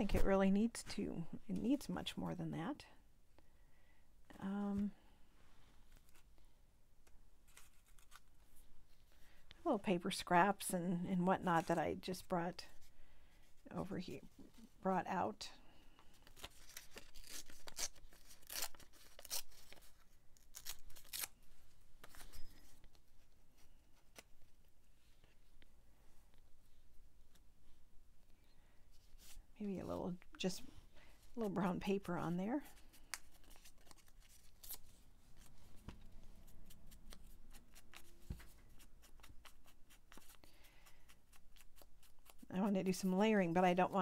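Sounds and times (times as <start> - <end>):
paper rustling and tearing: 7.4 - 8.6, 16.2 - 24.3, 32.6 - 42.5.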